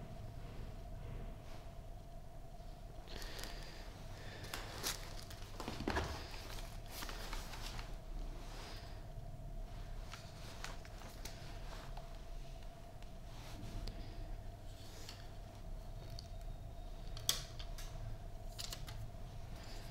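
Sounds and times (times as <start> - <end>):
faint steady hum: 0.0 - 19.9
packaging rustling and clicking: 4.4 - 8.0.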